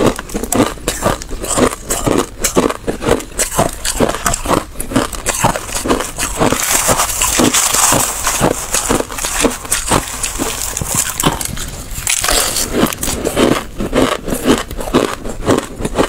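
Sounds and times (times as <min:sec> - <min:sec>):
ice being chewed: 0:00.0 - 0:16.0.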